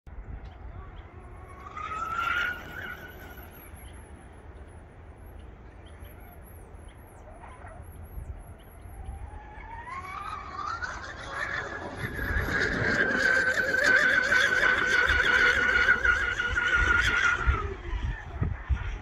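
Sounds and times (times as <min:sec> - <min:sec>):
small birds chirping: 0:00.3 - 0:13.6
rc boat motor whining: 0:00.5 - 0:19.0.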